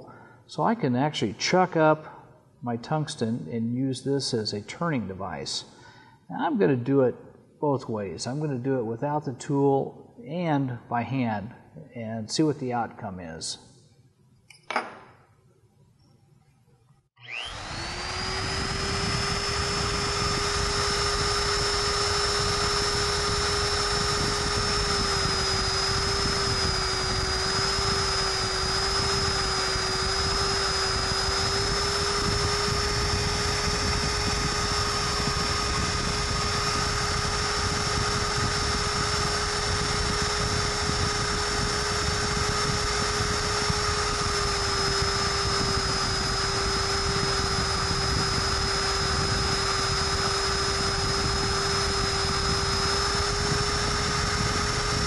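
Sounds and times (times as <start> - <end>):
grinder motor whining: 17.2 - 55.0.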